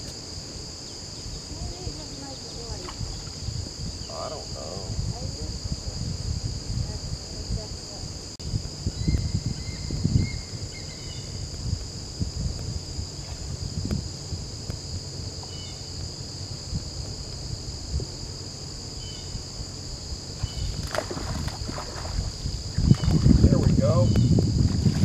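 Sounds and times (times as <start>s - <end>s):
insect chorus buzzing: 0.0s - 25.0s
wind rumble on microphone: 0.0s - 25.0s
water churned by fish: 20.4s - 23.4s.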